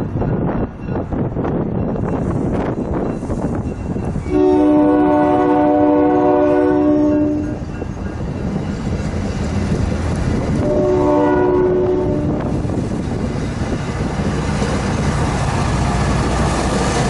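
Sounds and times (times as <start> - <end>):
train coaches rumbling: 0.0 - 17.0
train air horn blasts: 4.3 - 7.6, 10.6 - 12.5.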